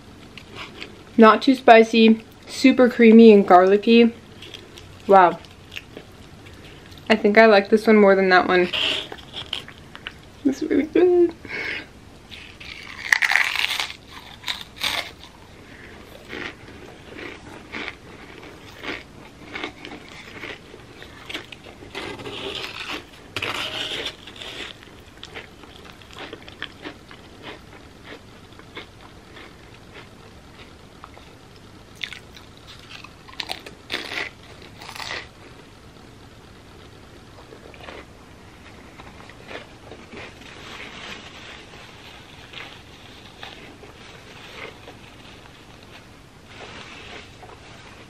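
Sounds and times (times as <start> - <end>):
potato crisps crunching: 12.3 - 35.3, 37.4 - 48.0.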